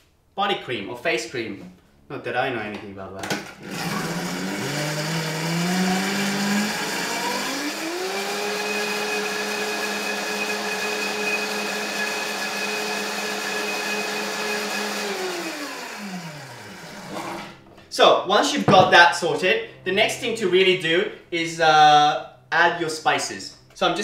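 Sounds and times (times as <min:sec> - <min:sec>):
blender motor whine: 0:03.5 - 0:17.6.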